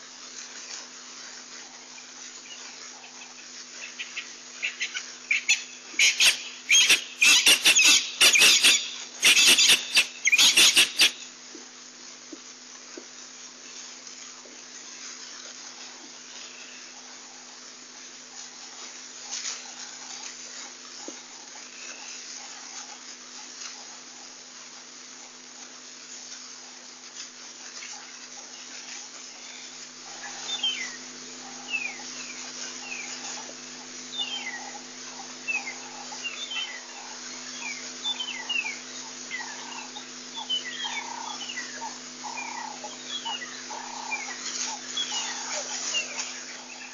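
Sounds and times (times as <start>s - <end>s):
rustle: 0.0s - 46.9s
steady hiss: 0.0s - 46.9s
birds chirping: 3.5s - 11.3s, 29.5s - 46.9s.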